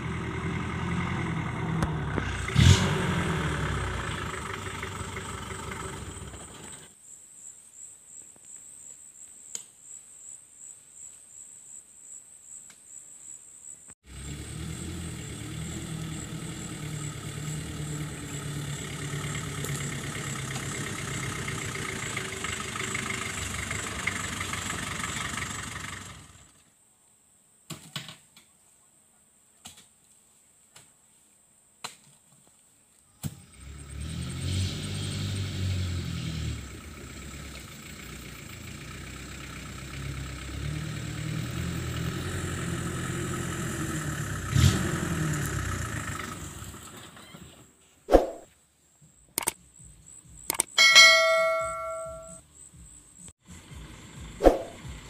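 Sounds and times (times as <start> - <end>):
pickup engine running: 0.0 - 6.9, 14.1 - 26.5, 33.4 - 47.3, 51.0 - 55.0.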